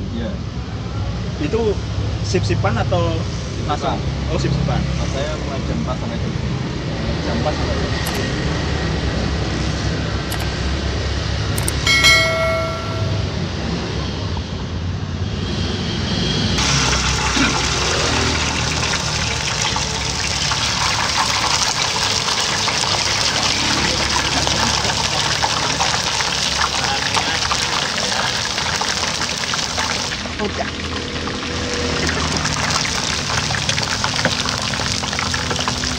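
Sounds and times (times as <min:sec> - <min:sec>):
low road rumble: 0:05.7 - 0:35.9
potatoes deep-frying in oil: 0:16.6 - 0:35.9.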